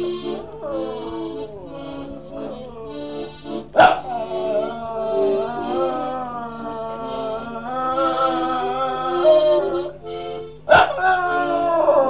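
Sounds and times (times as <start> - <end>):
accordion chords: 0.0 - 12.0
dog howling: 0.0 - 12.0.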